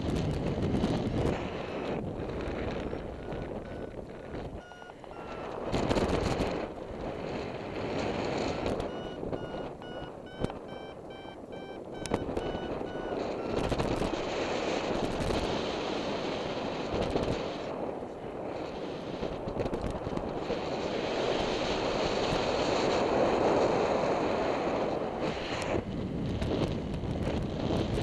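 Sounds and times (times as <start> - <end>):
wind rushing over microphone: 0.0 - 28.0
variometer beeps: 2.7 - 6.4, 8.6 - 14.2.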